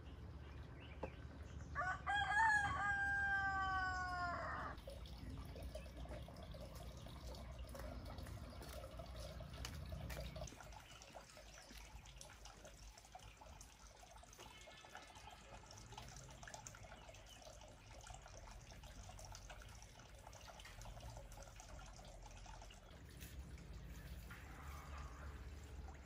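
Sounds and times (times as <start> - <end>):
rooster crowing: 1.8 - 4.8.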